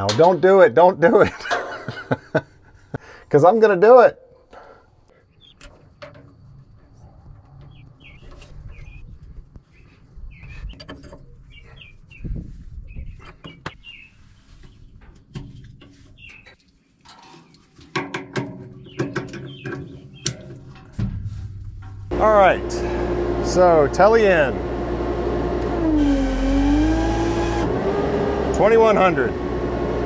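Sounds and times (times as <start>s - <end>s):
birds chirping: 4.2s - 5.6s, 7.6s - 15.1s, 18.8s - 20.4s.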